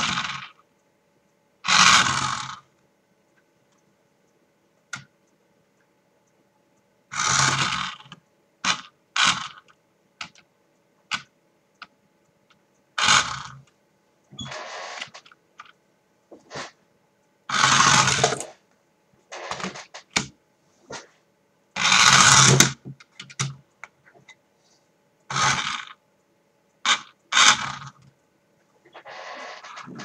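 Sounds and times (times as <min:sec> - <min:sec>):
toy car motor whirring: 0:00.0 - 0:00.6, 0:01.6 - 0:02.6, 0:07.1 - 0:09.7, 0:13.0 - 0:13.6, 0:17.5 - 0:18.6, 0:21.8 - 0:22.8, 0:25.3 - 0:26.0, 0:26.8 - 0:28.0
sharp clicks and clacks: 0:07.1 - 0:21.1.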